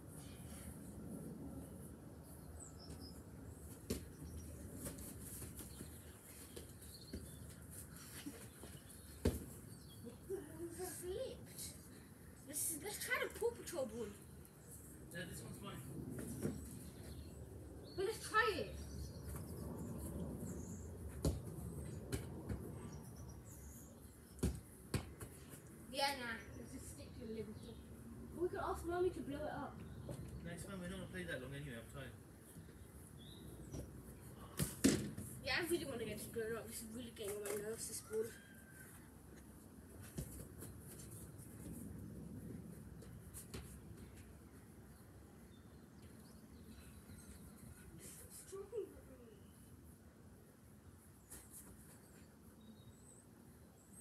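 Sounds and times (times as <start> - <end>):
football kicked thuds: 9.2 - 9.6, 24.4 - 25.3.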